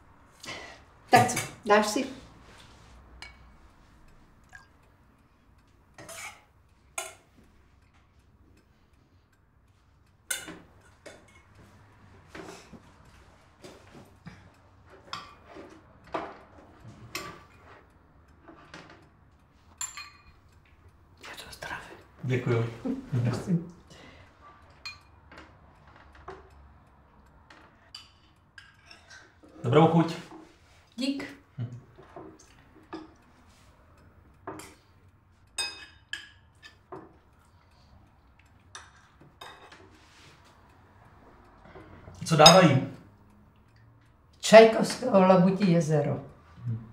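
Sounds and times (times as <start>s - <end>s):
metal spoons clinking against bowls: 3.2s - 3.6s, 6.0s - 8.0s, 10.3s - 11.6s, 14.9s - 17.8s, 19.8s - 20.7s, 24.7s - 25.4s, 27.9s - 30.4s, 35.5s - 37.8s, 38.6s - 39.9s, 42.2s - 43.1s
plates and cutlery clinking: 6.0s - 7.4s, 10.3s - 11.7s, 19.7s - 20.5s, 35.6s - 37.2s, 38.7s - 40.3s, 42.3s - 43.0s.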